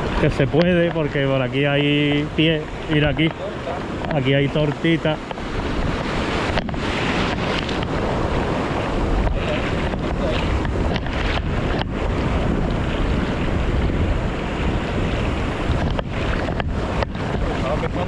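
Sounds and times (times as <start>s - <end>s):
breaking surf: 0.0s - 18.0s
wind buffeting microphone: 0.0s - 18.0s.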